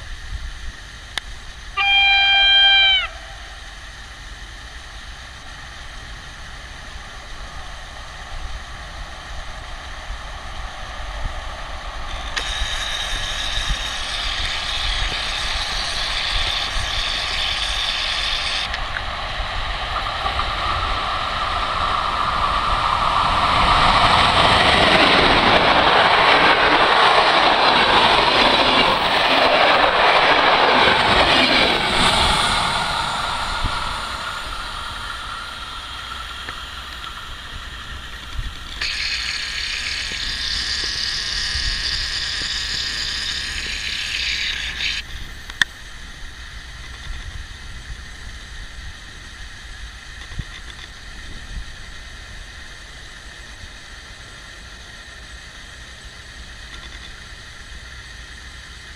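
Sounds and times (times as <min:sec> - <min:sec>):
wind noise: 0:00.0 - 0:53.9
steady high whine: 0:00.0 - 0:58.9
train wheels rumbling on rails: 0:00.0 - 0:58.9.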